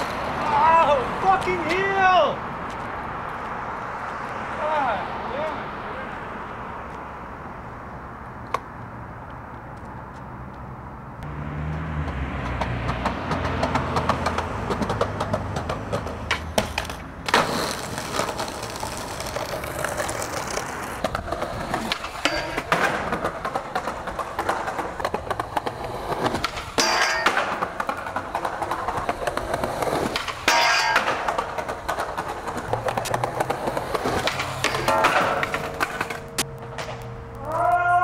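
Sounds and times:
skateboard wheels rolling on asphalt: 0:00.0 - 0:38.0
skateboard clacks: 0:12.0 - 0:37.9.

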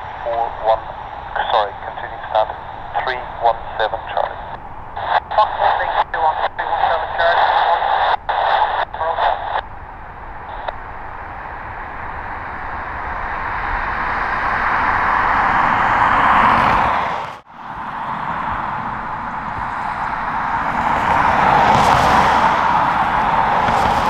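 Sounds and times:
radio chatter: 0:00.0 - 0:09.6, 0:10.4 - 0:10.8
jet engines rushing: 0:00.0 - 0:24.0.

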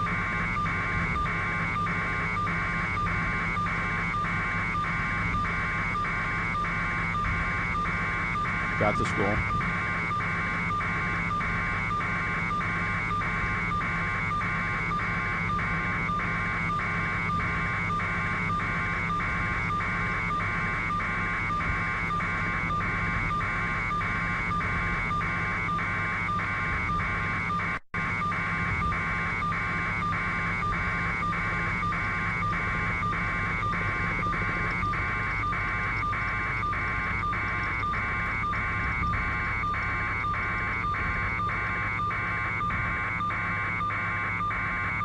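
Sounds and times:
electronic beeping: 0:28.2 - 0:45.0.

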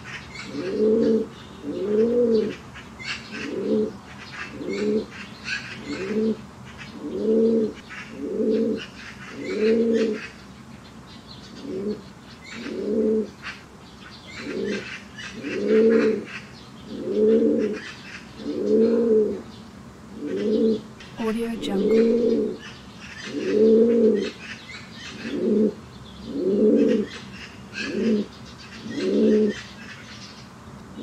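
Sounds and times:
pigeons cooing: 0:00.3 - 0:10.3, 0:11.6 - 0:13.5, 0:14.4 - 0:19.4, 0:23.2 - 0:24.4, 0:25.1 - 0:27.2, 0:27.8 - 0:28.3, 0:28.9 - 0:29.6.

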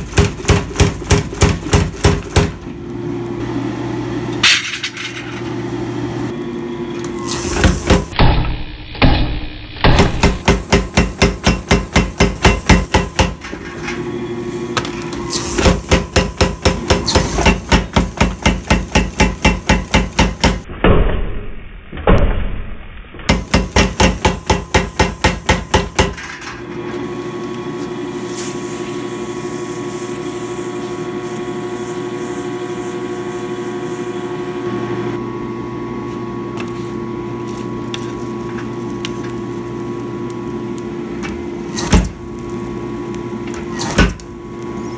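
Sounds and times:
power hammer pounding steel: 0:00.0 - 0:02.6, 0:07.6 - 0:13.4, 0:15.6 - 0:20.7, 0:23.3 - 0:26.4.

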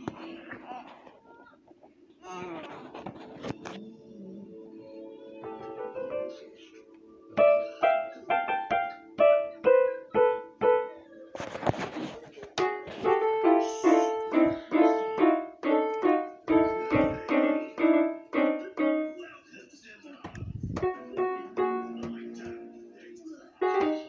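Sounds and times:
toy keyboard piano notes: 0:12.6 - 0:19.2.

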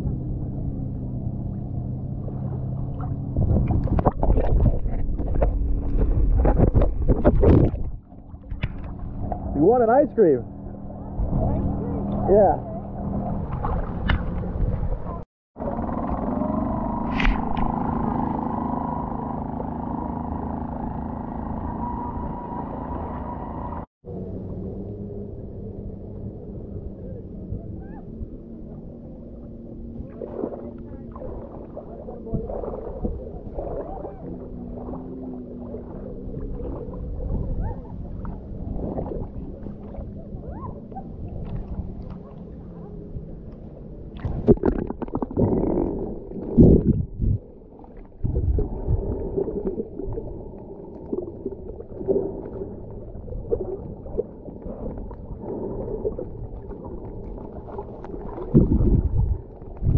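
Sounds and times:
muffled water sloshing and gurgling: 0:00.0 - 0:59.9
water splashing: 0:00.6 - 0:15.3, 0:29.1 - 0:59.9.

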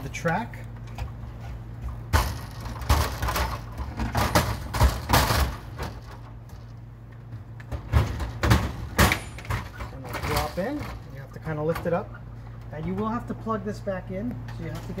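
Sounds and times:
metal shelf knocking and rattling: 0:01.9 - 0:06.3.

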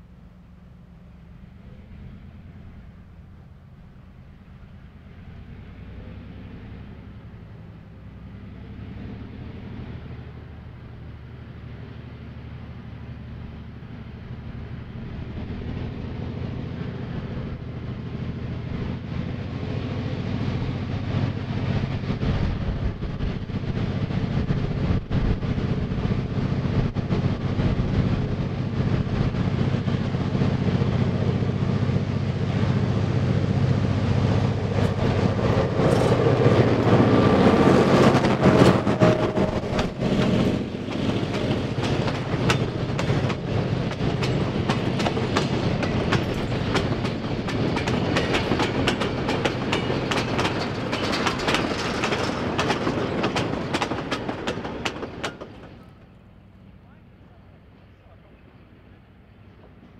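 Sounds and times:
diesel locomotive engine: 0:00.0 - 0:59.9
train wheels clattering over rail joints: 0:34.2 - 0:56.3.

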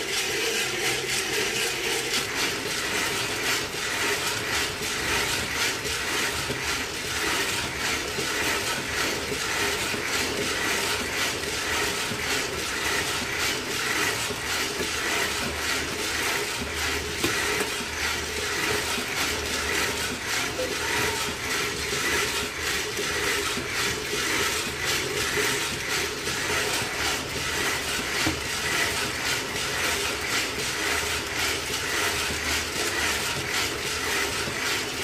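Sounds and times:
coffee beans rattling in drum: 0:00.0 - 0:35.0.

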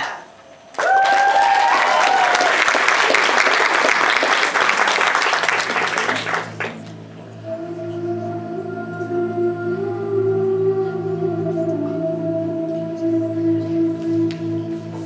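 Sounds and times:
high-pitched cheer: 0:00.7 - 0:06.7
audience applauding: 0:00.7 - 0:07.0
slow music with held tones: 0:04.5 - 0:15.0.

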